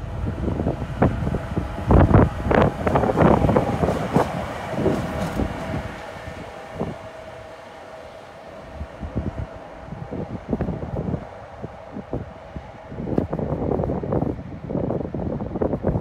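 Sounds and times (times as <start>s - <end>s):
locomotive hum: 0.0s - 16.0s
train wheels knocking over rail joints: 1.7s - 7.4s.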